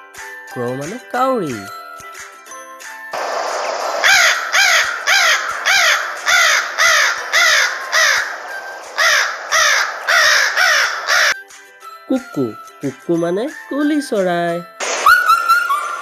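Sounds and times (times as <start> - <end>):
background hiss: 3.2 - 11.4
crow cawing: 3.2 - 11.4.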